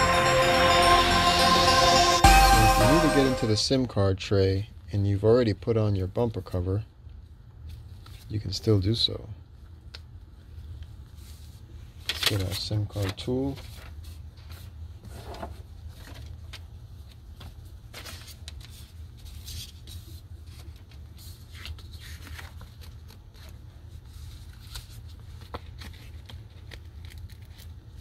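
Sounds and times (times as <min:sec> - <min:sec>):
paper rustling and sliding: 0:11.1 - 0:28.0.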